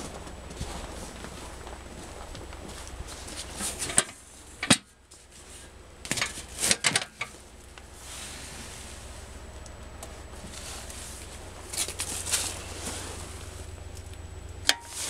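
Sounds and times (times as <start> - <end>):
clatters: 6.0 - 7.9.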